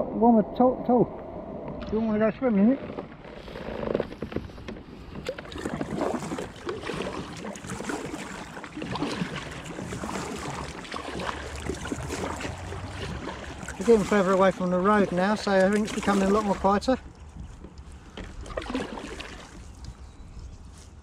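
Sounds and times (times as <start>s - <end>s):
paddle splashing in water: 3.0s - 19.8s
water dripping: 5.3s - 17.0s.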